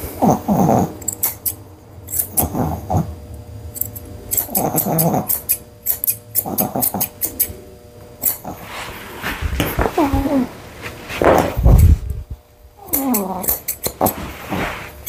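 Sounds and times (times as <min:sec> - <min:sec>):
dog grumbling: 0:00.0 - 0:01.5, 0:02.2 - 0:03.2, 0:04.3 - 0:07.5, 0:08.2 - 0:08.8, 0:09.6 - 0:10.6, 0:11.2 - 0:12.2, 0:12.8 - 0:14.9
scissors snipping: 0:03.8 - 0:07.5, 0:12.9 - 0:14.2.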